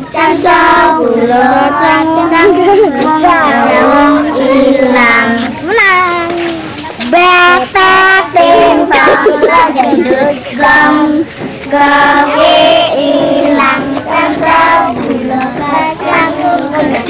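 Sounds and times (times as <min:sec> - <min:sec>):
children chanting a rhyme: 0:00.0 - 0:17.0.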